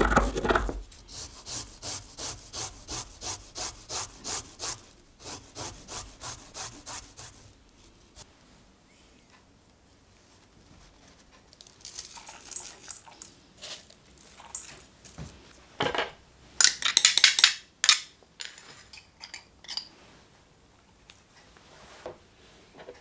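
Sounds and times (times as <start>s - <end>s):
utensils clinking in metal bowl: 11.9s - 14.9s.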